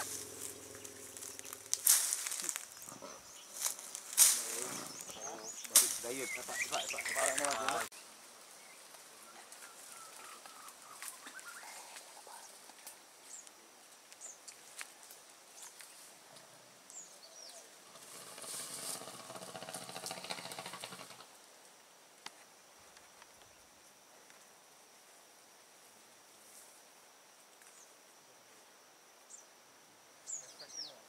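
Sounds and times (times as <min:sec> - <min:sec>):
sharp cracks: 0:00.0 - 0:02.9, 0:03.6 - 0:04.6, 0:05.6 - 0:06.2
low hum: 0:00.0 - 0:05.1
insect drone: 0:00.0 - 0:31.0
rustle: 0:00.0 - 0:31.0
bird chirps: 0:04.6 - 0:07.9, 0:08.6 - 0:11.9.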